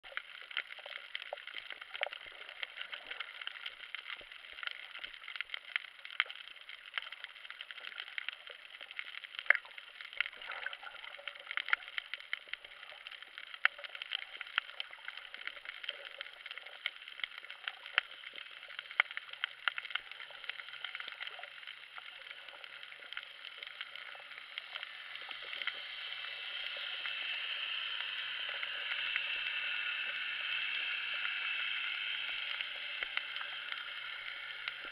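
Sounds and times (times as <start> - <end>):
crackle of sharp clicks: 0.1 - 34.9
underwater hiss: 22.2 - 34.9.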